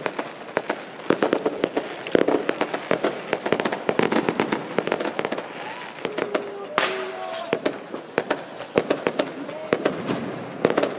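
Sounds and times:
fireworks bangs and crackles: 0.0s - 10.9s.

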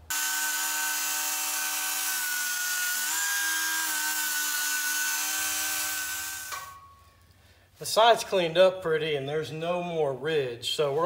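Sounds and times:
die grinder whining: 0.0s - 6.8s.

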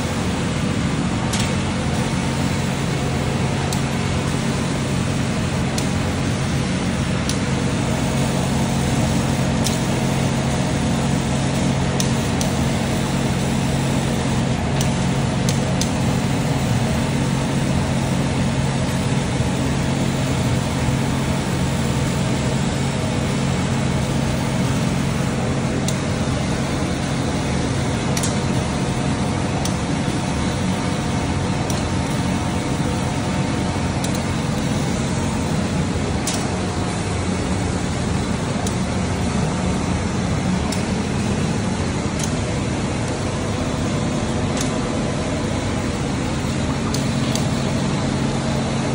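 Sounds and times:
laser cutter humming: 0.0s - 48.9s.

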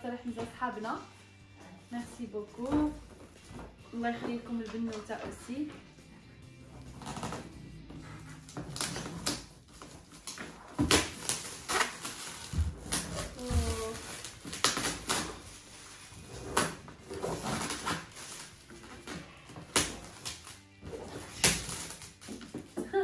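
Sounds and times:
wrapping paper tearing and crumpling: 6.8s - 7.5s, 8.3s - 22.8s.

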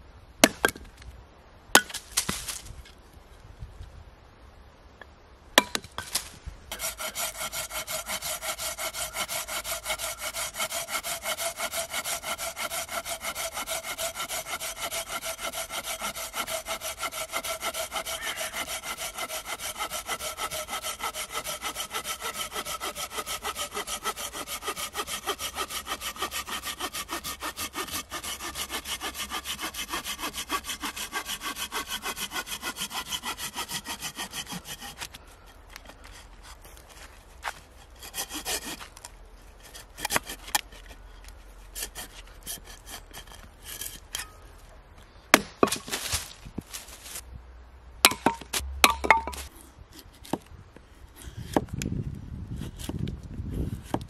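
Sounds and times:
axe striking wood: 0.4s - 0.9s, 5.6s - 6.2s, 45.3s - 46.3s, 48.0s - 49.5s
saw cutting through branch: 6.7s - 35.2s, 37.8s - 39.0s, 39.6s - 41.0s, 41.7s - 44.4s.

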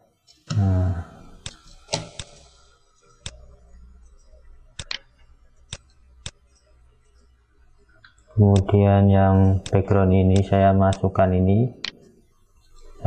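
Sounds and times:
computer mouse clicking: 1.4s - 2.6s, 3.2s - 7.4s, 8.0s - 8.8s.

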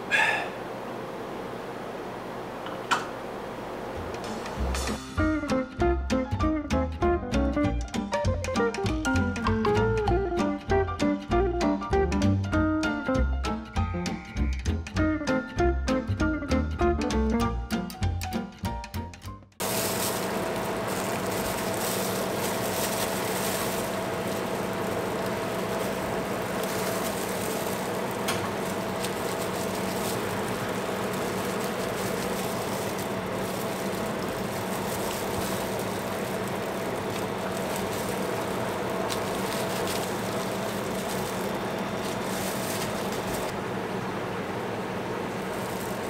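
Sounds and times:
kitchen machine hum: 0.0s - 6.0s, 19.6s - 46.0s.

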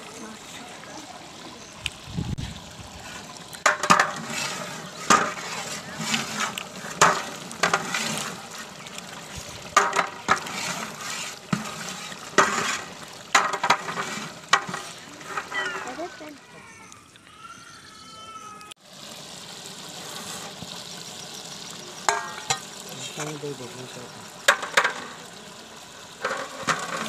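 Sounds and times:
metal ladle scraping a pot: 2.9s - 16.2s, 20.0s - 20.7s, 22.1s - 23.4s, 26.2s - 27.0s.

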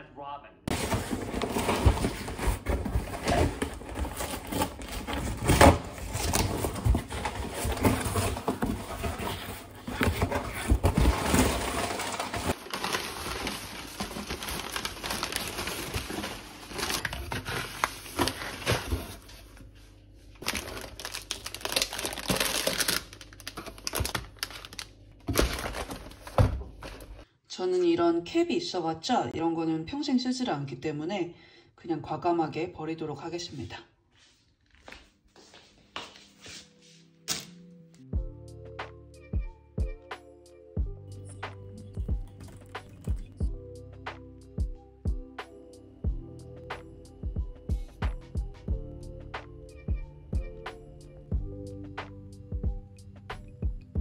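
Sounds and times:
plastic wrapping crackling: 0.7s - 19.5s, 20.4s - 27.2s
packing paper crinkling: 0.7s - 19.7s, 20.4s - 27.2s, 41.8s - 43.4s.

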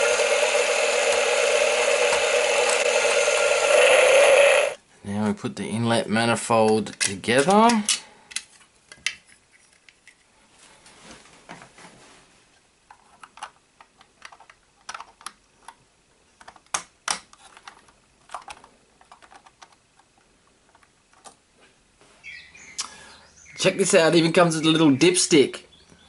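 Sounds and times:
small plastic parts clicking: 12.9s - 15.8s, 16.4s - 21.4s.

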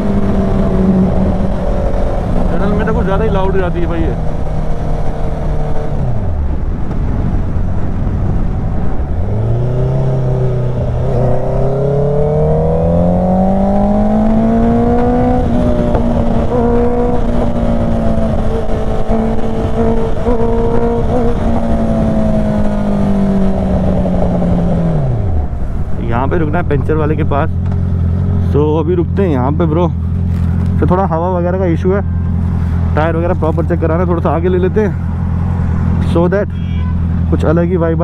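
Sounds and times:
wind noise: 0.0s - 28.4s
motorcycle engine and exhaust: 0.0s - 38.0s.

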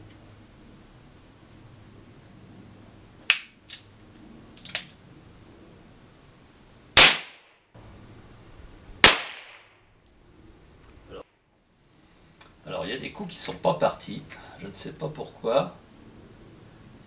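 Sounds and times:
loud gunshots with ringing tail: 7.0s - 7.5s, 9.0s - 9.7s.

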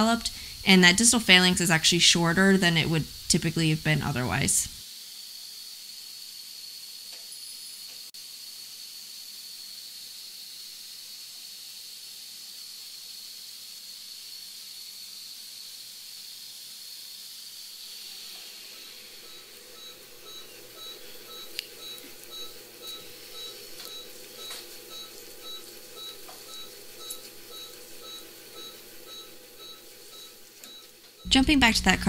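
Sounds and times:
faint high whine: 0.0s - 4.8s, 16.8s - 32.0s
surgical laser hissing: 0.0s - 31.2s.

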